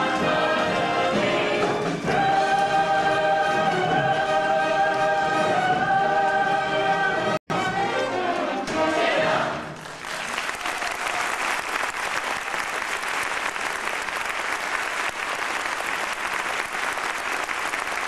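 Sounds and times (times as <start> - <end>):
audience applauding: 9.8 - 18.0.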